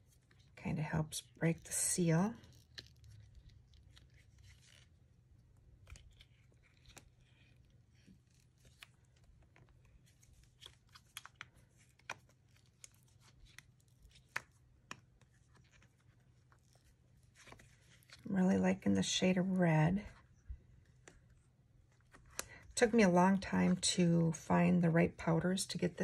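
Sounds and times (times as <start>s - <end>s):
silicone mold rubbing and peeling: 1.6s - 18.2s
small clicks and scrapes: 2.4s - 5.0s, 5.8s - 18.2s.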